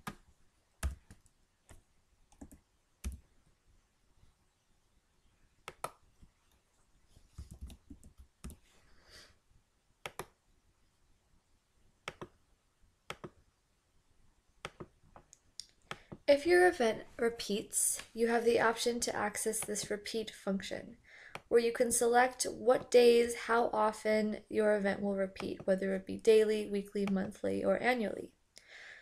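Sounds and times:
computer mouse clicks: 0:00.8 - 0:03.2, 0:05.7 - 0:06.0, 0:07.3 - 0:08.6, 0:10.0 - 0:10.4, 0:12.1 - 0:12.4, 0:13.1 - 0:13.4, 0:14.6 - 0:16.2.

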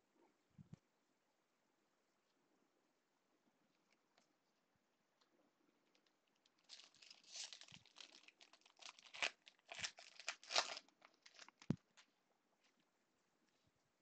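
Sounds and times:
foil wrapper tearing and crinkling: 0:06.6 - 0:12.0.

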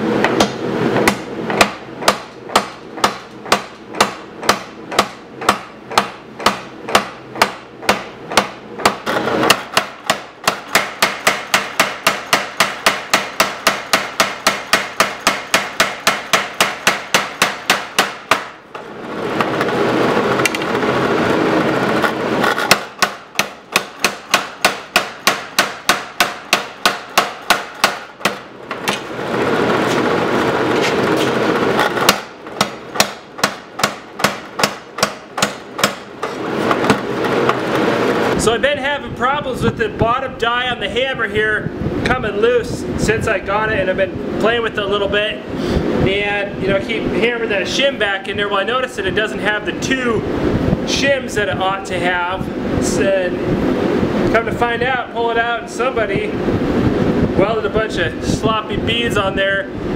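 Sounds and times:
machine running noise: 0:00.0 - 0:59.9
power hammer striking hot steel: 0:00.2 - 0:19.7, 0:22.6 - 0:29.2, 0:31.9 - 0:37.7.

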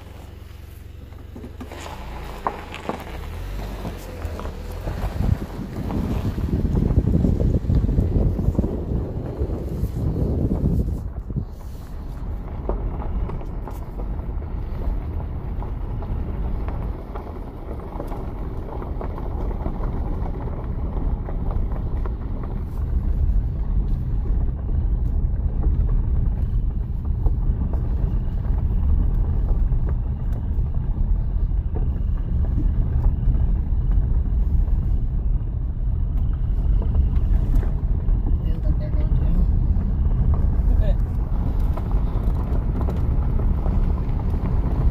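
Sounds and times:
tyre and engine rumble: 0:00.0 - 0:44.9.

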